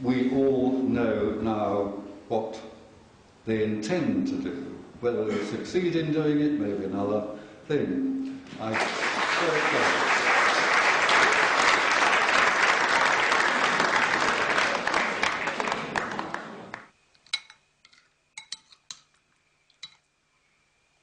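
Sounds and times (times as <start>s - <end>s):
audience applauding: 8.6s - 16.9s
metal spoon clinking china bowl: 17.3s - 20.1s.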